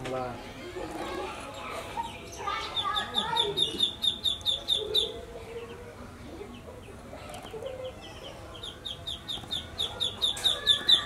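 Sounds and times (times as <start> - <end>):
rapid high peeping chirps: 2.2 - 5.2, 8.2 - 11.0.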